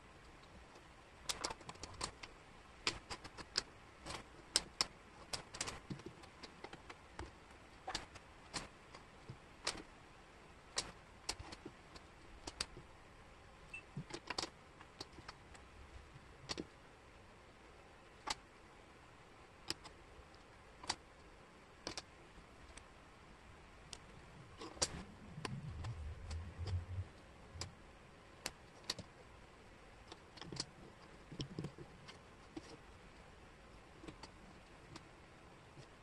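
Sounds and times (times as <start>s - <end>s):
wooden puzzle pieces clicking: 1.2s - 7.3s, 9.6s - 9.9s, 10.8s - 12.8s, 16.4s - 16.7s, 21.8s - 22.1s.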